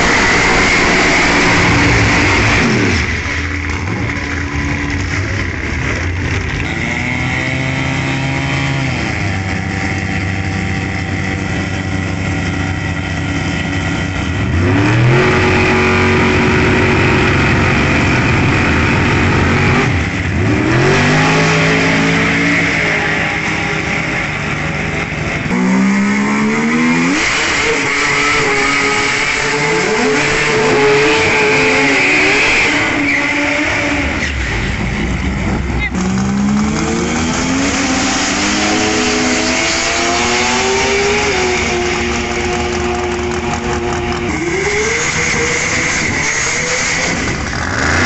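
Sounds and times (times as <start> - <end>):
car engines revving hard: 0.0 - 48.0.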